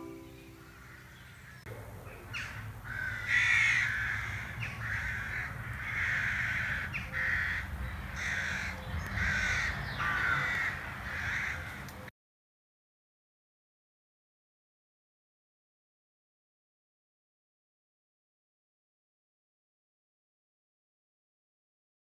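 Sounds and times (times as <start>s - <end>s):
rooks cawing: 0.6s - 1.6s, 2.3s - 12.0s.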